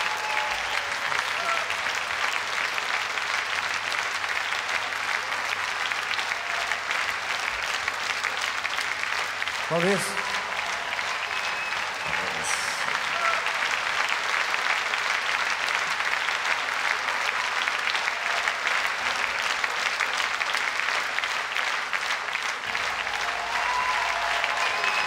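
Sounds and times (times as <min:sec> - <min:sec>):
audience applauding: 0:00.0 - 0:25.0.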